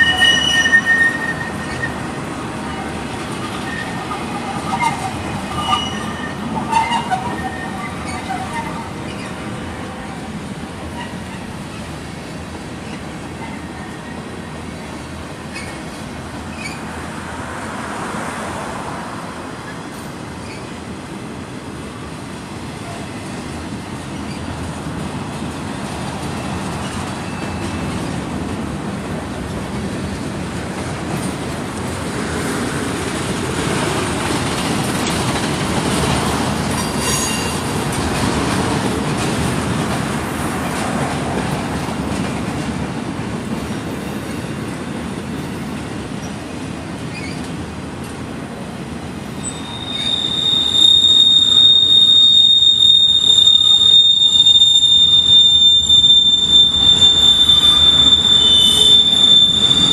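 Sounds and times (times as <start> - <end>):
high wheel squeals: 0.0 - 9.4, 16.5 - 16.9, 26.4 - 28.1, 36.8 - 37.7, 49.3 - 59.9
train wheels clattering on rails: 22.6 - 59.9.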